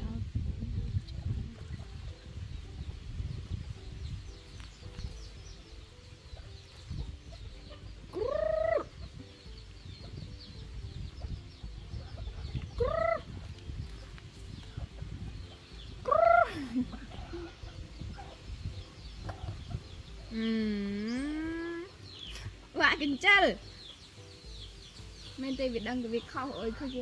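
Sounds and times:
chicken calling: 7.3 - 9.2, 12.0 - 13.5, 15.4 - 18.4.

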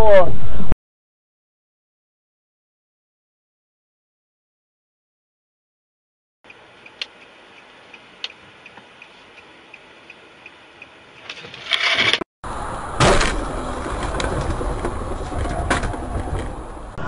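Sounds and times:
road and vehicle noise: 6.4 - 17.0
regular ticking: 6.5 - 11.3
loud rush of noise: 12.1 - 17.0
loud bang: 12.9 - 13.7.

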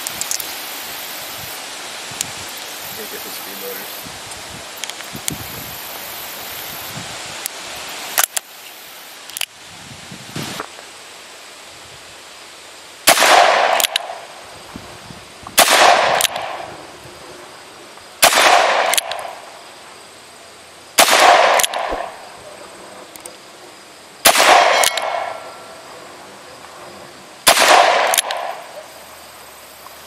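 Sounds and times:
revolver shots: 21.0 - 22.2.

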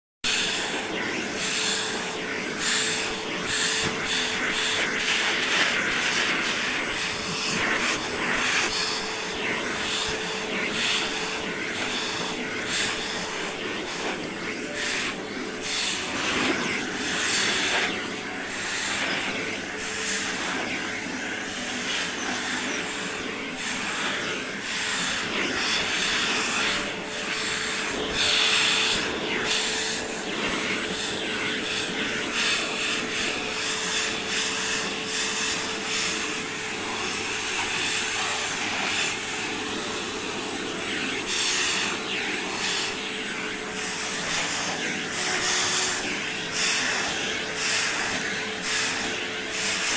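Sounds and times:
vacuum cleaner running: 0.2 - 49.9.

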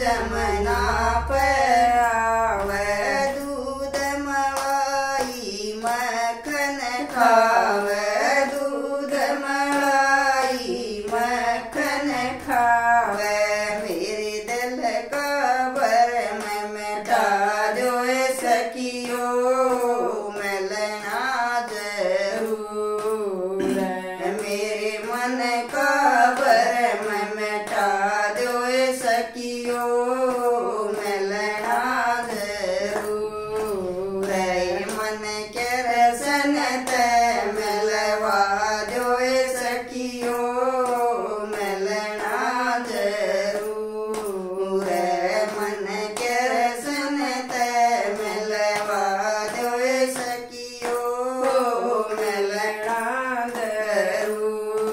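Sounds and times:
women singing: 0.0 - 54.9
hand claps: 2.6 - 54.9.

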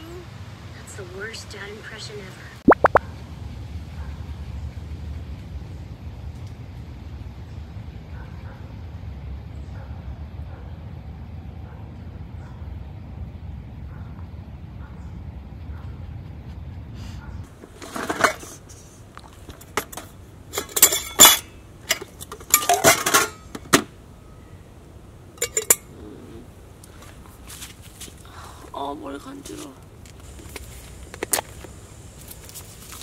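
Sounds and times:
dishes and utensils clinking: 19.8 - 23.6, 25.4 - 25.9.

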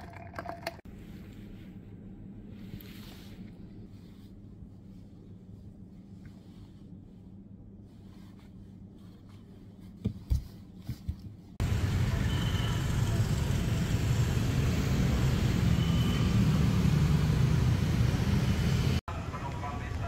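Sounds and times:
low rumble of road traffic: 11.6 - 20.0.

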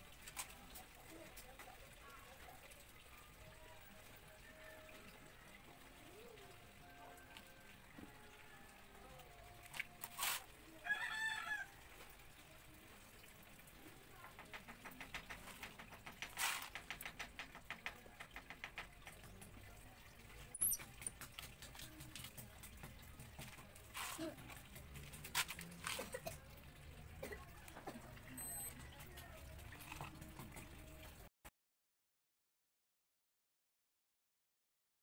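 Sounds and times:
handling clicks and ticks: 14.3 - 19.8, 20.5 - 26.2.

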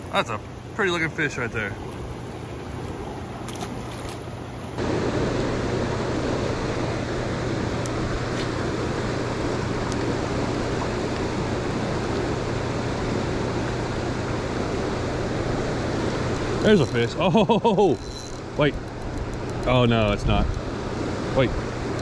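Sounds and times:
fast-flowing water rushing: 0.0 - 4.6.

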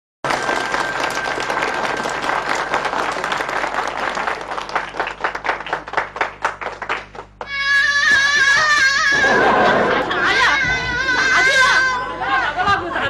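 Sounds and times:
audience applauding: 0.2 - 7.6.

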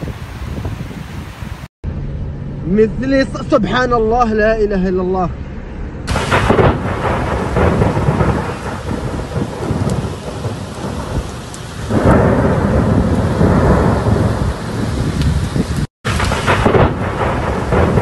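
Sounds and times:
low rumble: 1.8 - 15.5
heavy rain downpour: 6.1 - 18.0.

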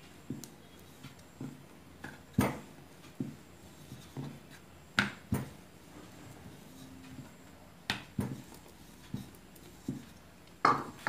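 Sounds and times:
rolling pin rubbing on dough: 0.2 - 10.3
rolling pin knocking on board: 10.6 - 11.0.

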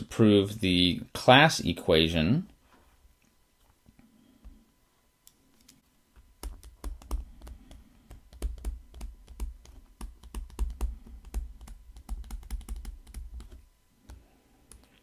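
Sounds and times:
stylus tapping on tablet screen: 6.2 - 14.2.

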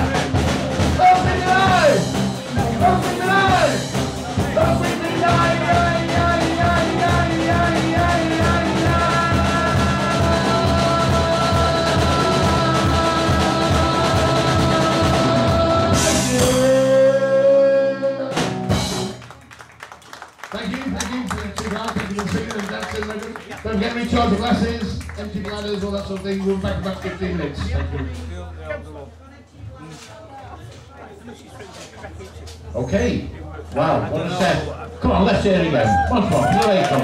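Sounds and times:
drum-kit beat: 0.0 - 17.2, 18.4 - 19.3
bass guitar: 0.0 - 19.3.

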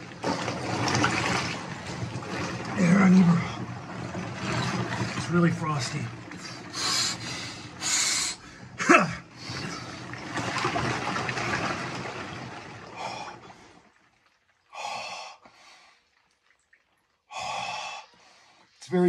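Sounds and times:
water and ice sloshing: 0.0 - 14.7
heavy breathing: 6.7 - 8.8, 17.3 - 18.7.

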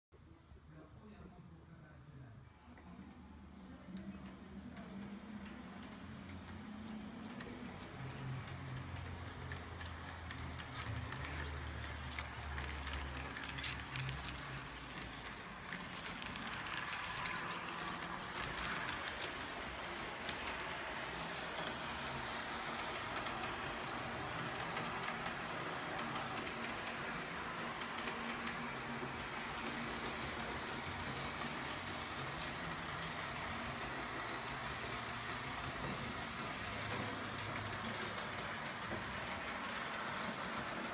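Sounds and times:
steady rolling hiss: 3.3 - 40.9
wheels clicking over rails: 3.5 - 40.9
model train motor hum: 3.8 - 40.9.

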